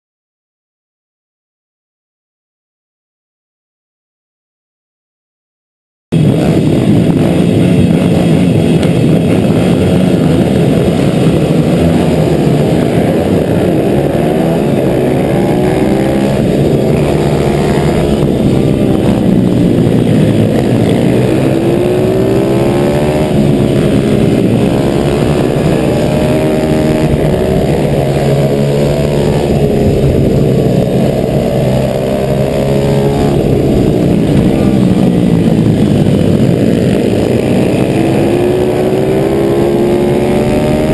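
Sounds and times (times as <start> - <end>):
surrounding motorbike engines: 6.1 - 40.9
wind noise: 6.1 - 40.9
motorbike engine racing: 6.2 - 40.9.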